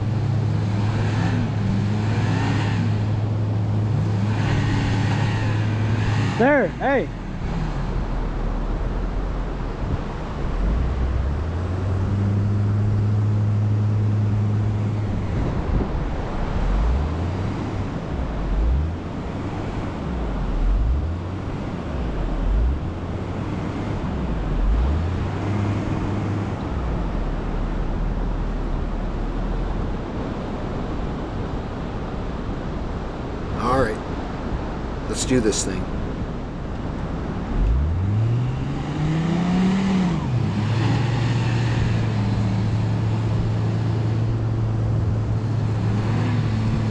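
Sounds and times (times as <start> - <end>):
engines revving: 0.0 - 8.7, 9.9 - 27.9, 37.1 - 46.9.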